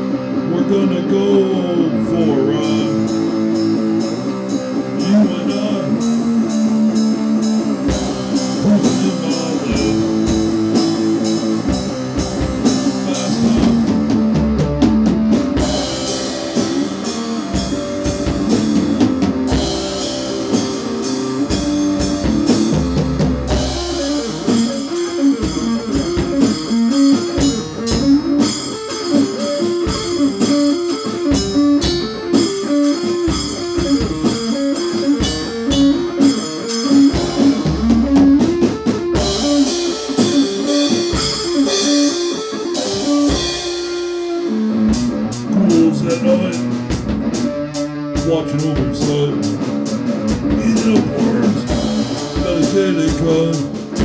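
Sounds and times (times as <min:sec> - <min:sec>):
instrumental rock music: 0:00.0 - 0:54.0.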